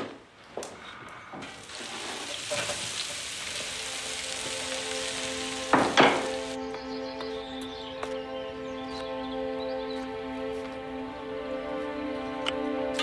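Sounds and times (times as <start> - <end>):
vegetables sizzling in a pot: 1.4 - 6.6
soft music chords: 3.8 - 13.0.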